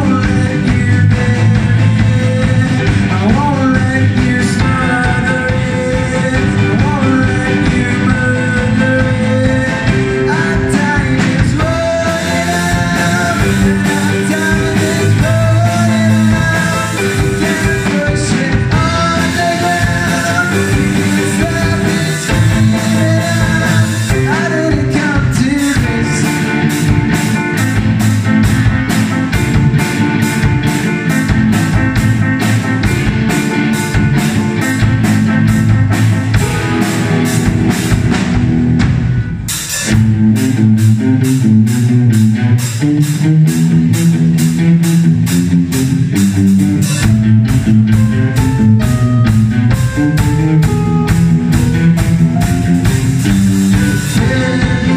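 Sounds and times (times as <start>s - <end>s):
man singing lead vocal: 0.0s - 26.9s, 53.7s - 54.9s
drum kit cymbal beat: 0.0s - 54.9s
electric guitar: 0.0s - 54.9s
keyboard: 0.0s - 54.9s.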